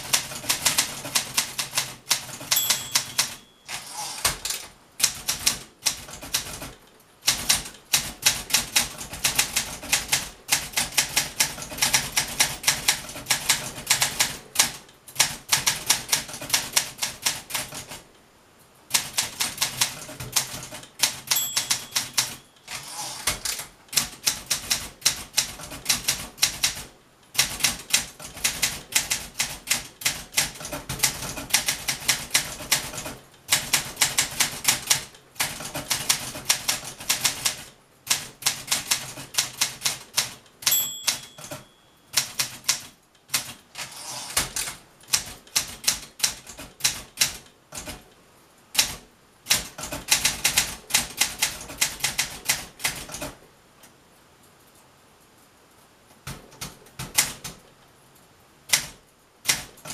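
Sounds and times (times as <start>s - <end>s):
typewriter key strikes: 0.1s - 6.7s, 19.6s - 26.8s, 38.9s - 42.9s
typewriter bell ring: 2.3s - 4.3s, 21.1s - 23.4s, 40.6s - 42.4s.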